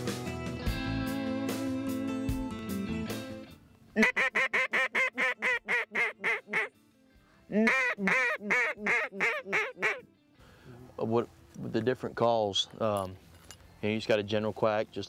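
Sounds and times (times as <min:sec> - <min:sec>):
duck call quacks: 0:04.0 - 0:06.7, 0:07.5 - 0:10.0.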